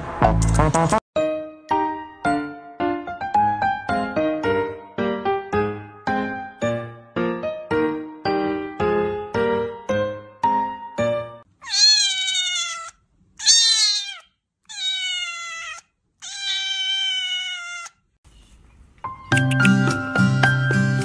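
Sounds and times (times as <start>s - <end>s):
kitten meowing: 11.6s - 17.9s.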